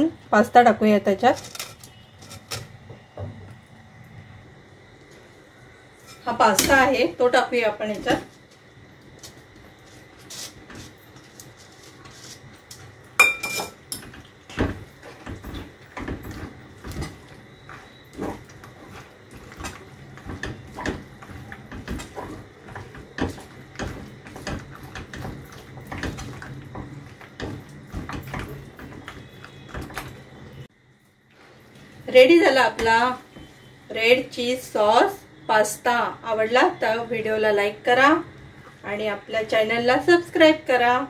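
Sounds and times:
spatula scraping in a pan: 0:06.0 - 0:06.8, 0:09.8 - 0:12.6, 0:15.0 - 0:29.9.

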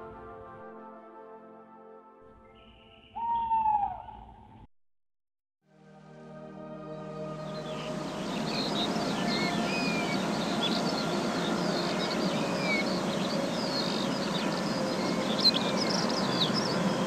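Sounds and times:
rushing background noise: 0:07.4 - 0:17.0
small birds chirping: 0:07.4 - 0:17.0.

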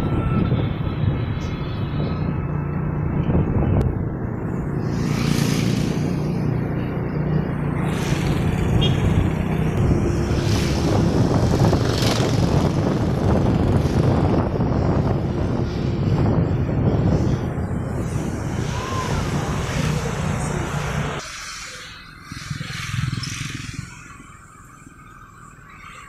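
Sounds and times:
wind buffeting microphone: 0:00.0 - 0:06.7, 0:07.8 - 0:20.7.

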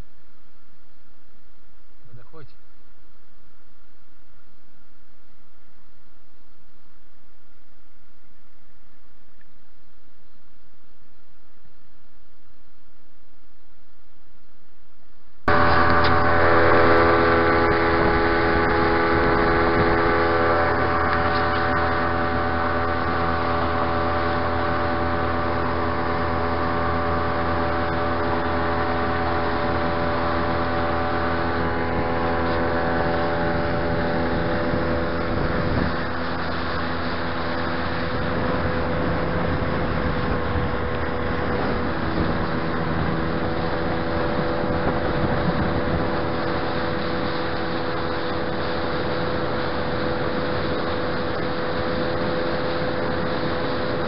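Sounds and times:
outboard motor humming: 0:15.4 - 0:54.0.

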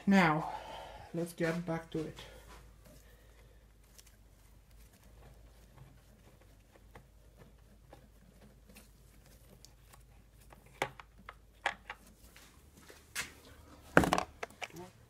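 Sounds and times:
hand clicking and tapping parts: 0:02.8 - 0:12.2.

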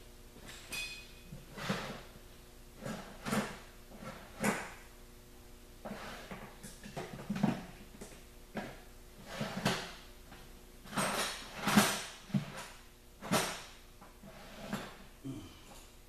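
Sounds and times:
metal tools clanking and scraping: 0:00.6 - 0:01.2.

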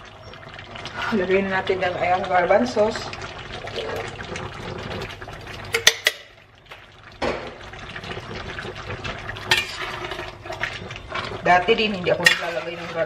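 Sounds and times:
food simmering in pan: 0:00.0 - 0:13.0
spoon stirring in metal pan: 0:08.4 - 0:13.0.

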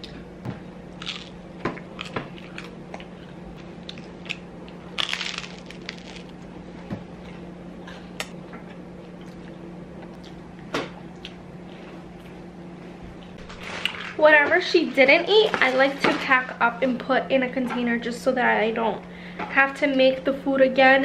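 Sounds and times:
steady low hum: 0:00.0 - 0:21.0
chewing and crunching: 0:00.9 - 0:06.5, 0:07.2 - 0:10.5.

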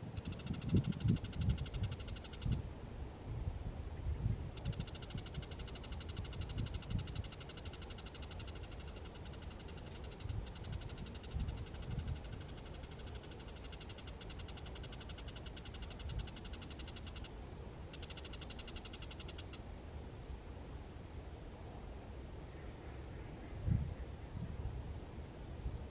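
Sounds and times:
shrike chattering rattle: 0:00.2 - 0:02.6, 0:04.6 - 0:17.3, 0:17.9 - 0:19.6.

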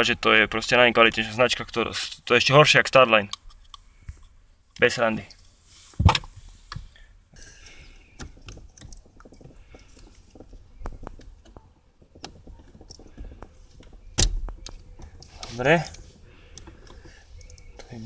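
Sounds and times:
small clicks and taps: 0:08.2 - 0:18.0.

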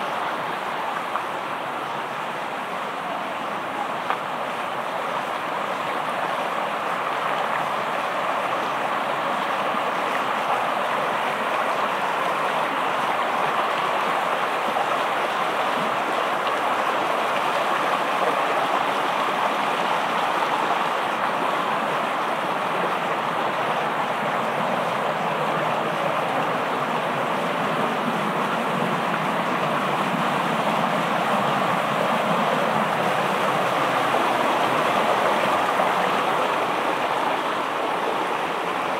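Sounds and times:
stream rushing over stones: 0:00.0 - 0:38.9.

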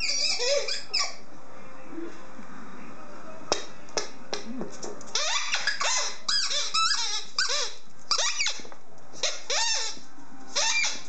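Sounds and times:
dog chomping squeaky ball: 0:00.0 - 0:01.2, 0:05.1 - 0:08.6.

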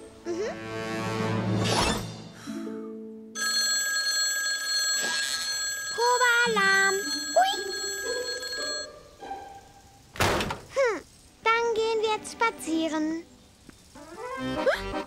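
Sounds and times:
electronic phone ringing: 0:03.4 - 0:08.9
cartoon music: 0:14.0 - 0:15.0.

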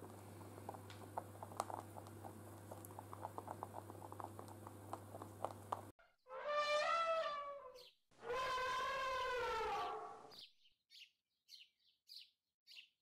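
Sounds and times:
rabbits munching hay: 0:00.0 - 0:05.9
steady low hum: 0:00.0 - 0:05.9.

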